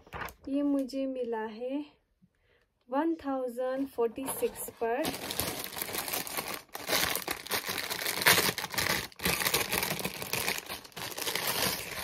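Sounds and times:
plastic bag crinkling: 4.3 - 12.0.

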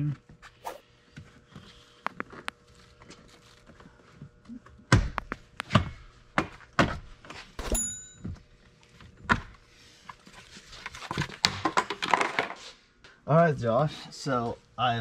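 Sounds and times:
short metallic ring: 7.6 - 8.3.

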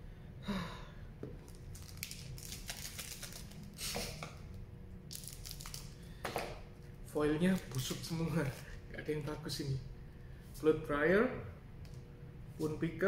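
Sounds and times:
cards rustling: 1.5 - 4.2.

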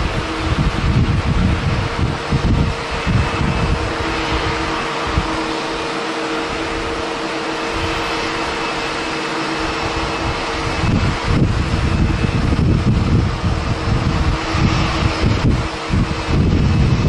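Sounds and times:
jet engine hum: 0.0 - 17.0
wind buffeting microphone: 0.0 - 17.0.

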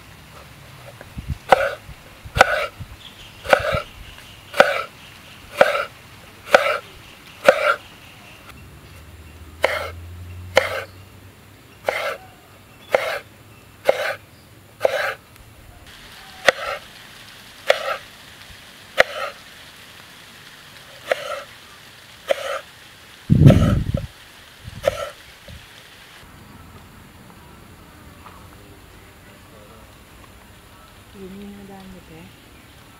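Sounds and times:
knife cutting on wooden board: 1.5 - 1.8, 2.4 - 2.7, 3.5 - 3.8, 4.6 - 4.9, 5.6 - 5.9, 6.5 - 6.8, 7.4 - 7.8, 9.6 - 9.9, 10.6 - 10.9, 11.9 - 12.2, 12.9 - 13.2, 13.9 - 14.2, 14.8 - 15.2, 16.5 - 16.8, 17.7 - 18.0, 19.0 - 19.3.

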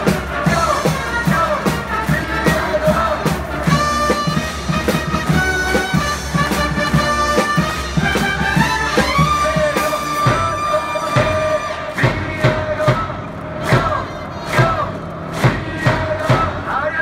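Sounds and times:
trumpets playing melody: 0.0 - 12.1
bass drum beat: 0.0 - 16.8
brass band playing: 0.0 - 17.0.

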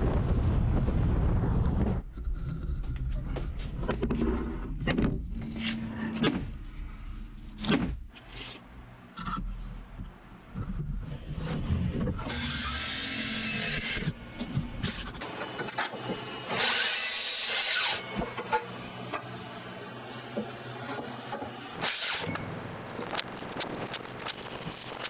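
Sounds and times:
mitre saw cutting wood: 15.2 - 19.3, 20.2 - 22.3.

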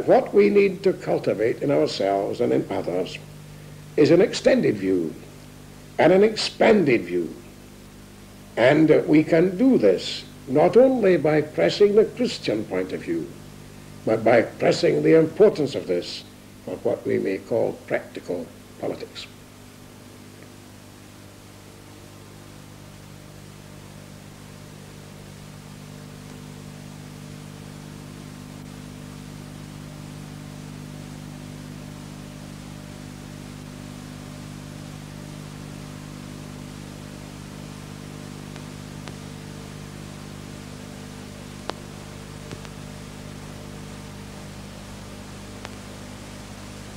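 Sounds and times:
tape hiss and low hum: 0.0 - 46.9
clicks: 38.5 - 39.3, 41.6 - 42.9, 45.6 - 45.9.

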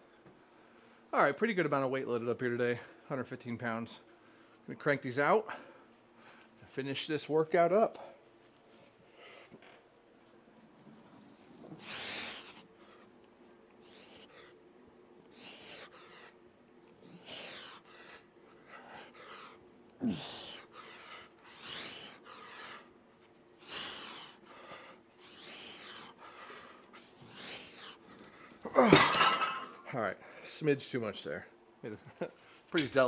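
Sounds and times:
man breathing hard: 11.6 - 14.6, 15.2 - 28.7
man grunting: 20.0 - 20.5, 28.7 - 29.2.

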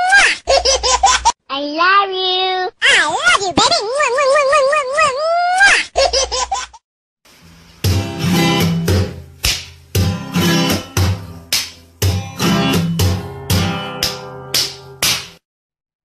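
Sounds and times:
acoustic guitar strumming chords: 7.8 - 15.4.

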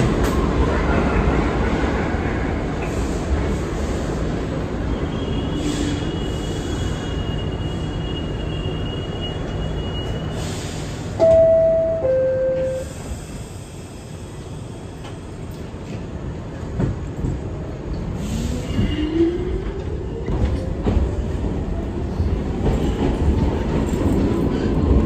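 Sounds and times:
subway car squealing: 0.0 - 16.0, 17.9 - 25.0
train rumble: 0.0 - 25.0
two-note door chime: 11.2 - 12.9.

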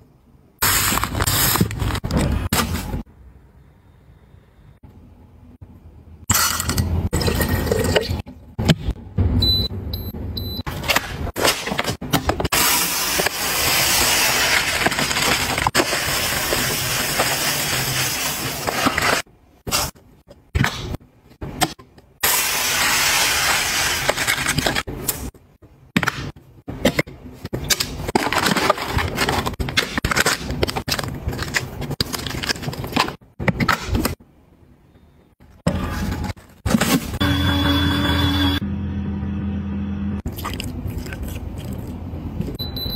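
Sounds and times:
plastic packaging crinkling: 13.9 - 18.0, 28.1 - 33.0.

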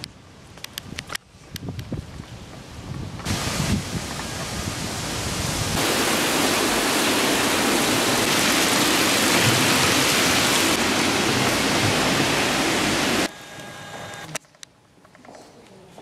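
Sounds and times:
fountain splashing: 3.3 - 13.3.

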